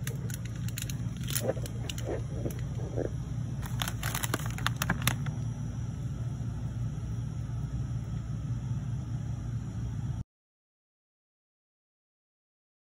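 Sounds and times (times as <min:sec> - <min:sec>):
plastic snack bag crinkling: 0:00.0 - 0:05.4
steady low hum: 0:00.0 - 0:10.2.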